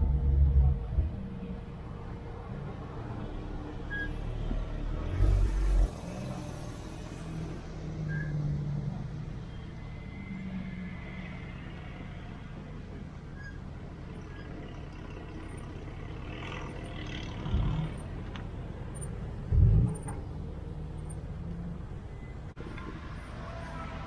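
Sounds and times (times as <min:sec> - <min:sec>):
sports cars rolling at low revs: 0:14.6 - 0:22.9.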